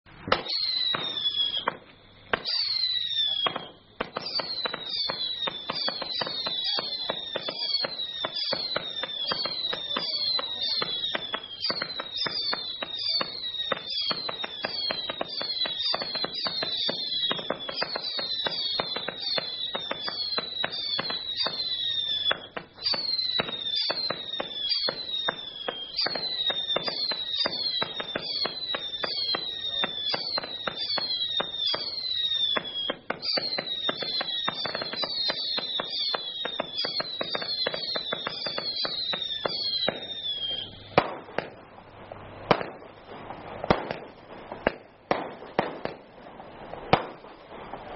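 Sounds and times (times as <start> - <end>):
crackling and pops: 0.1 - 47.9
loud firework bangs: 0.1 - 47.9
whistling firework shots: 0.1 - 47.9.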